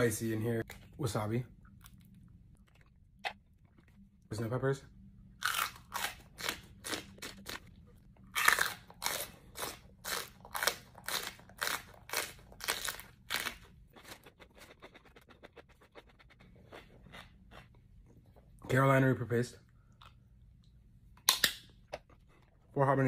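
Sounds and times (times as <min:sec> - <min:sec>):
crunching and chewing food: 0:00.6 - 0:04.2, 0:05.4 - 0:18.6.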